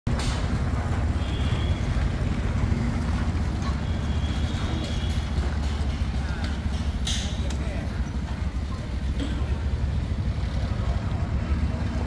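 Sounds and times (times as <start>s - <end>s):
tractor engine running: 0.1s - 12.0s.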